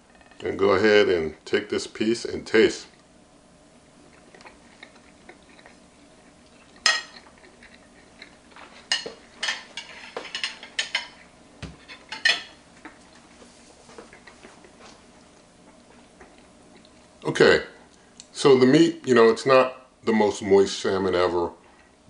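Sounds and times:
fork clinking on a plate: 0:06.8 - 0:07.2.

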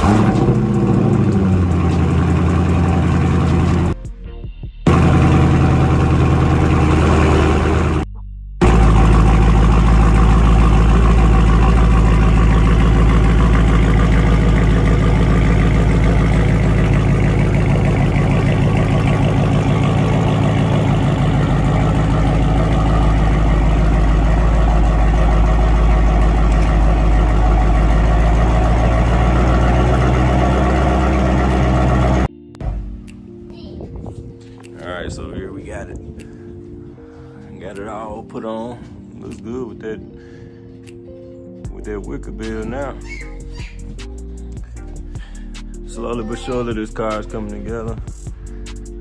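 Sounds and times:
car engine idling: 0:00.0 - 0:04.0, 0:04.9 - 0:32.9.

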